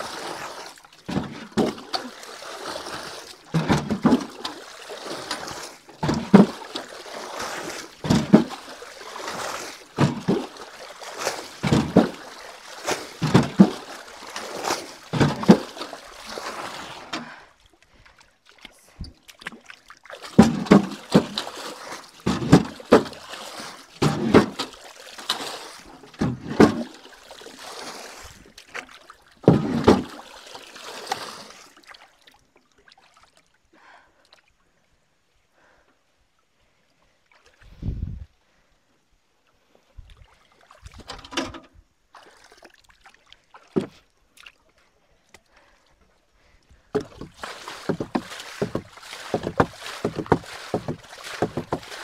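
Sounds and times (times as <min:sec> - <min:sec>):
water splashing from bucket: 0:00.0 - 0:33.4, 0:42.2 - 0:44.6, 0:46.9 - 0:52.0.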